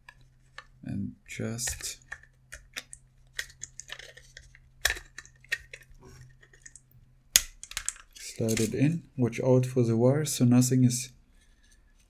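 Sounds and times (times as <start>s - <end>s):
plastic parts clicking: 1.5s - 8.8s.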